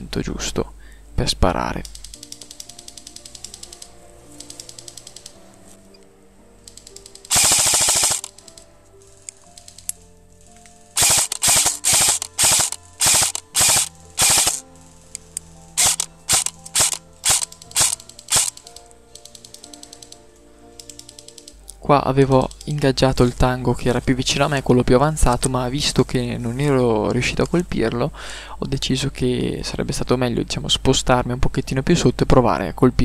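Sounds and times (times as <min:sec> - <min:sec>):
airsoft rifle automatic fire: 0:07.3 - 0:08.3, 0:11.0 - 0:14.6, 0:15.8 - 0:18.5.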